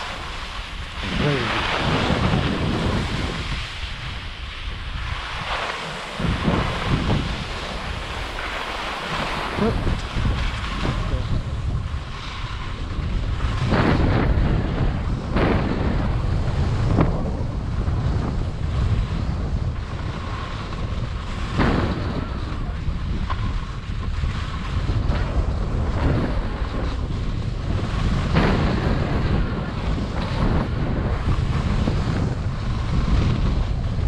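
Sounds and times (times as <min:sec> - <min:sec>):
skis scraping across snow: 0:00.0 - 0:34.0
wind buffeting microphone: 0:00.0 - 0:34.0.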